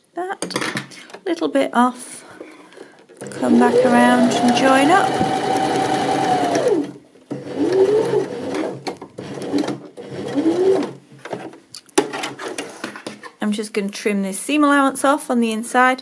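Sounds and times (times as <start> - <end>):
sewing machine motor whining: 3.2 - 11.0.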